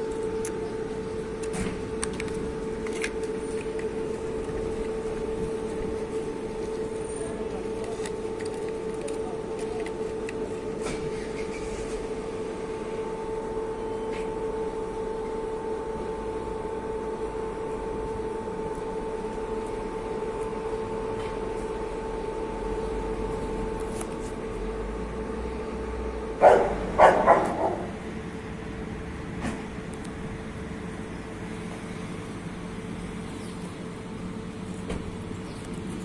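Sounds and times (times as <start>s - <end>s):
steady mechanical hum: 0.0s - 36.0s
dog barking: 26.4s - 27.9s.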